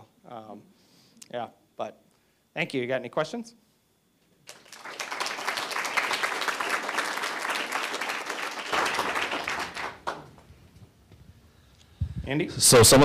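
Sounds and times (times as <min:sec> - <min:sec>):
audience applauding: 0:04.5 - 0:10.4.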